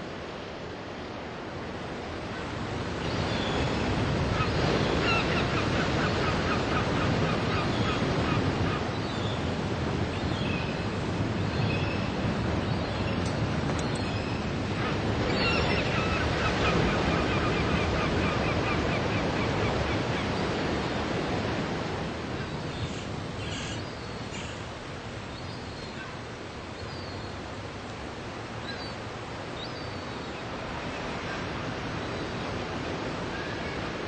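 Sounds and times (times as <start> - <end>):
ocean surf breaking on beach: 0.0 - 25.4, 30.2 - 34.0.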